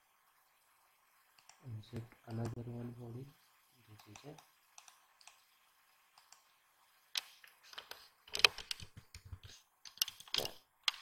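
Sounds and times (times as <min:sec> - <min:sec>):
mouse clicks: 0:04.0 - 0:05.4.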